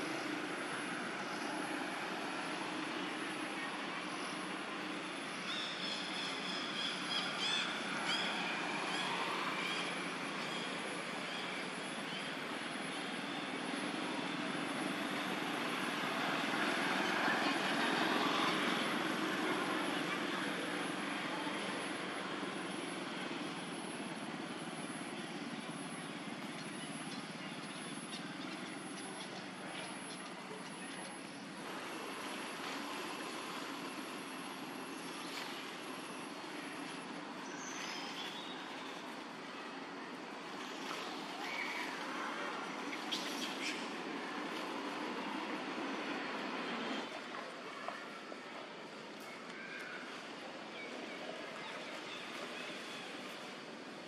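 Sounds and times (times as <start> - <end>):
outdoor background hum: 0.0 - 54.0
steady mechanical drone: 0.0 - 54.0.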